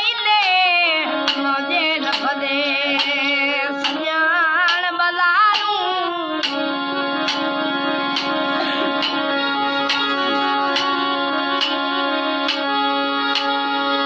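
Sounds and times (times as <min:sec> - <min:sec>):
boy singing: 0:00.0 - 0:06.7
harmonium chords: 0:00.0 - 0:14.0.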